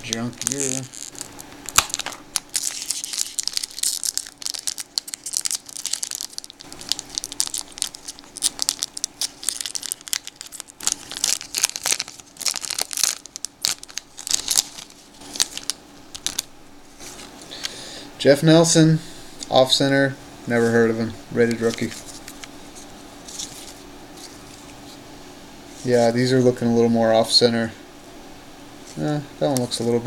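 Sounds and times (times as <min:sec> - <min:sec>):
foil wrapper tearing and crinkling: 0:00.0 - 0:17.3, 0:21.4 - 0:24.9.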